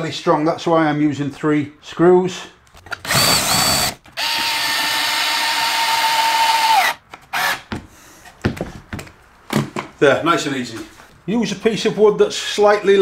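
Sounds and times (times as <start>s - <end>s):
cordless drill whining into wood: 3.0s - 7.6s.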